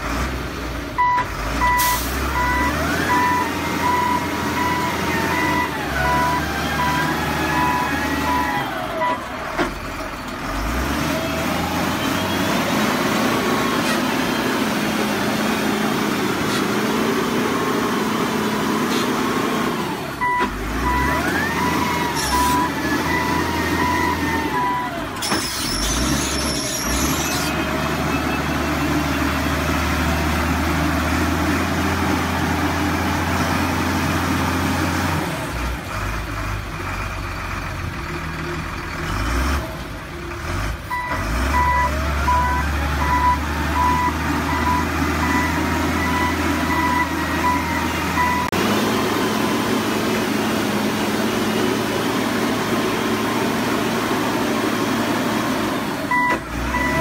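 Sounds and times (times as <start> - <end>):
diesel engine running: 0.0 - 57.0
reversing alarm beeping: 1.0 - 9.3, 20.2 - 29.3, 40.9 - 49.7, 56.1 - 57.0.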